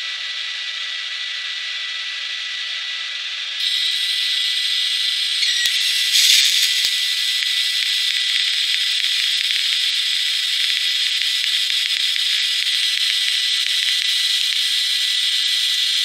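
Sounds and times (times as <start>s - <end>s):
thin high whine: 2.6s - 16.0s
welding arc hissing: 3.6s - 16.0s.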